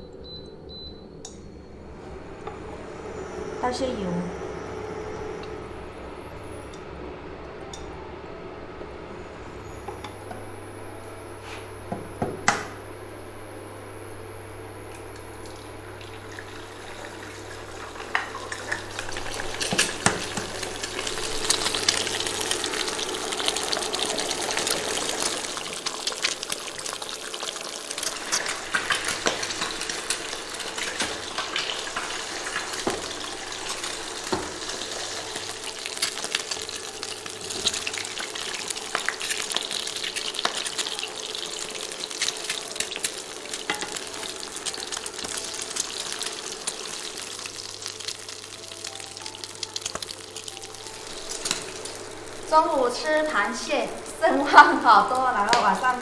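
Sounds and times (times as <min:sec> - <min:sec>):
eggs sizzling in hot oil: 0:14.9 - 0:56.0
oil crackling spatter: 0:15.3 - 0:56.0.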